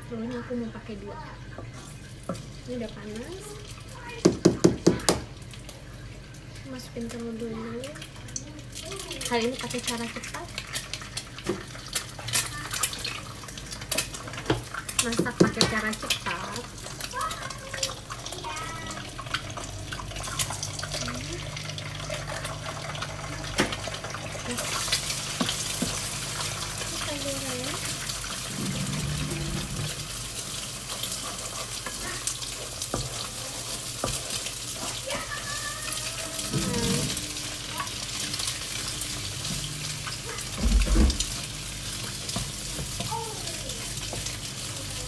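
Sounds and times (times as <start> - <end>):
eggs sizzling in hot oil: 0.0 - 45.0
wooden spoon knocking on pan: 4.2 - 5.4, 14.4 - 15.9, 32.9 - 33.2.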